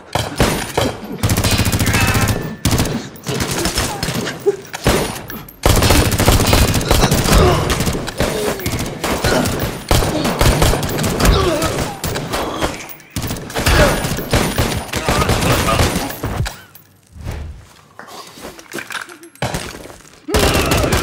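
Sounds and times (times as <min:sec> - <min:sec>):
heavy gunfire: 0:04.8 - 0:12.5.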